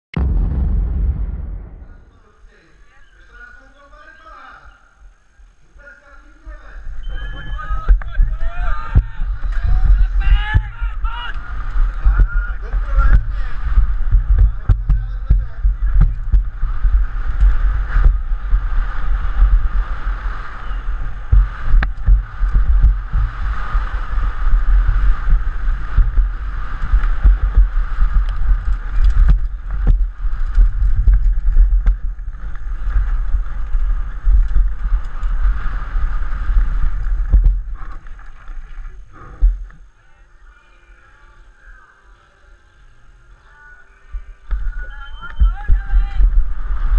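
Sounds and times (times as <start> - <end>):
wind buffeting microphone: 6.9 - 39.7
bike knocks and rattles: 11.9 - 39.7.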